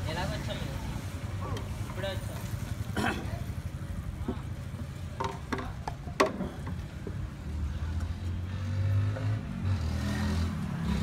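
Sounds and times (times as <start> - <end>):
hollow bamboo knocking: 4.2 - 7.2.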